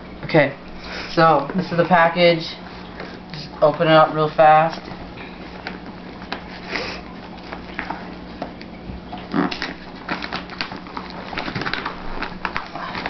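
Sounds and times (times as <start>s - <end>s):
steady low hum: 0.0s - 13.0s
scratching crinkling of box packaging: 4.7s - 13.0s.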